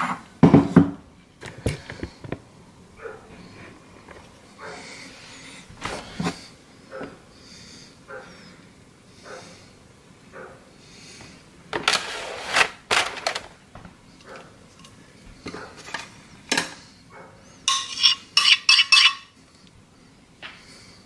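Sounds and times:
ringing clinks: 17.7s - 19.3s.

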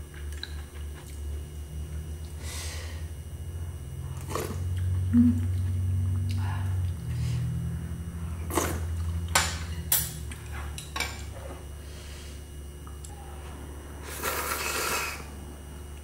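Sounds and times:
person slurping noodles: 14.0s - 15.3s.

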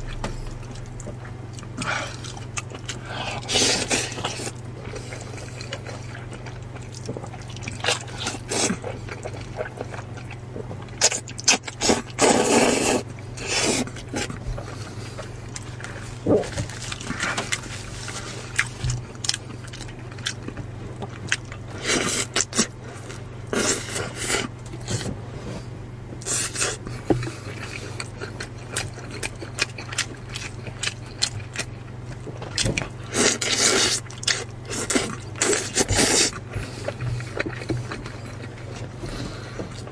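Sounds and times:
chicken bitten and chewed: 0.0s - 25.1s, 26.2s - 39.9s
steady low hum: 0.0s - 39.9s
noodles slurped and chewed: 1.0s - 15.3s, 32.5s - 39.8s.

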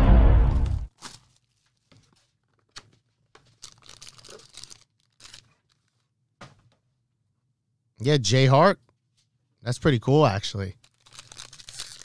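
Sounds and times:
wrapper tearing and crinkling: 0.9s - 2.8s, 3.4s - 6.0s, 10.8s - 12.0s.

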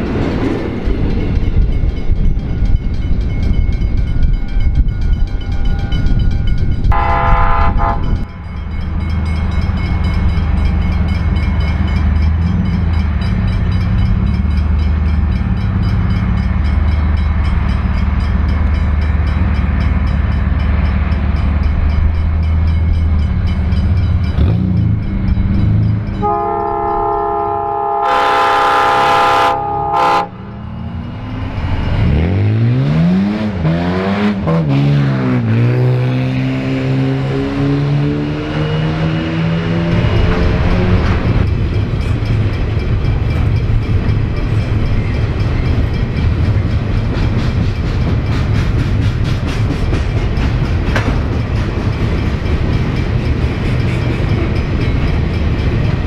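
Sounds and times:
diesel locomotive engine rumble: 0.0s - 56.0s
locomotive chime horn: 4.2s - 30.8s.

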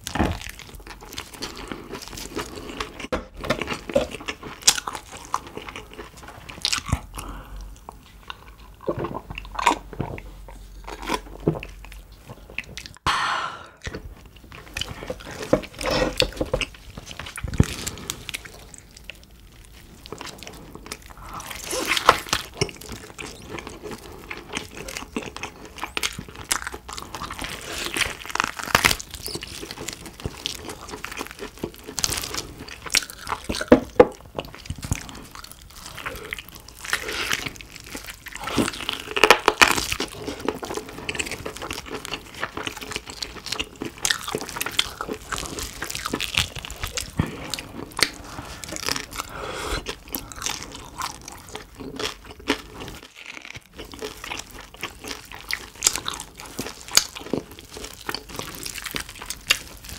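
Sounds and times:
wet chewing sounds: 0.0s - 13.0s, 13.8s - 59.9s
crispy skin crunching: 13.8s - 59.9s.

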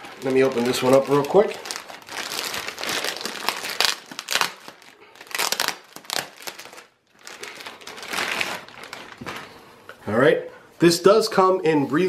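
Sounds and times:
packaging crinkling and rustling: 0.0s - 9.7s.

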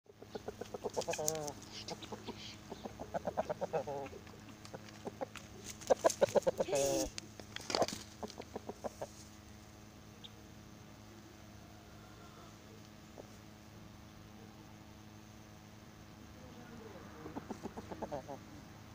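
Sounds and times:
chicken clucking: 0.1s - 9.4s, 17.2s - 18.6s.

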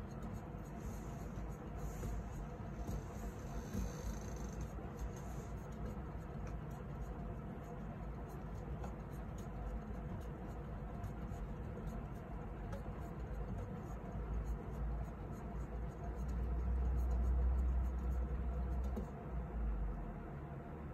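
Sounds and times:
plastic hamster wheel rumbling: 0.9s - 7.2s.

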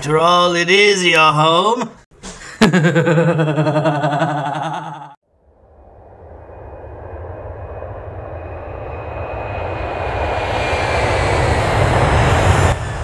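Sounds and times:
aircraft engine rumble and whine: 5.9s - 13.0s.

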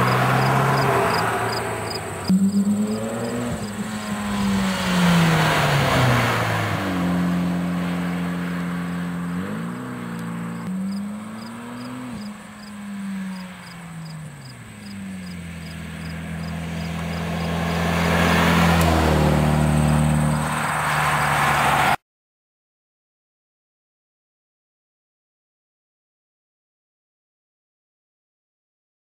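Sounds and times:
car exhaust drive-bys: 0.0s - 22.0s.

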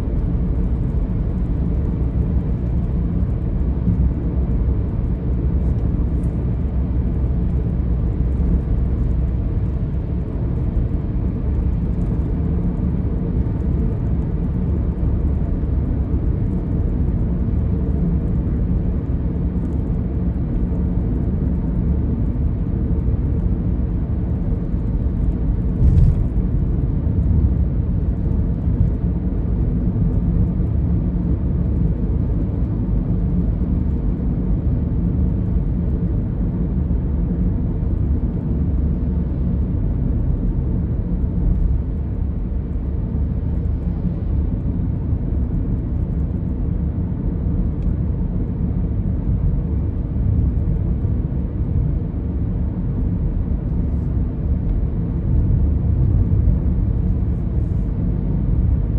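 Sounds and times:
car road and engine noise: 0.0s - 58.9s.

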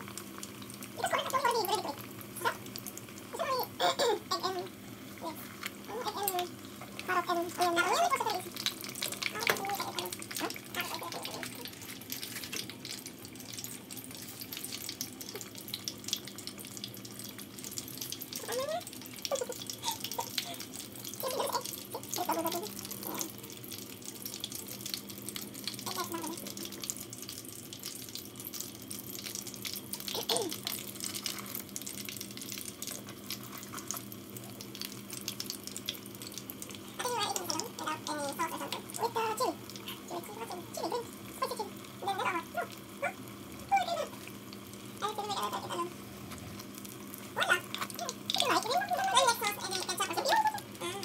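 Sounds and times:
pastries sizzling in hot oil: 0.0s - 51.0s
person speaking: 3.3s - 8.6s, 9.2s - 12.5s, 18.4s - 23.3s, 45.0s - 46.1s, 47.4s - 51.0s.

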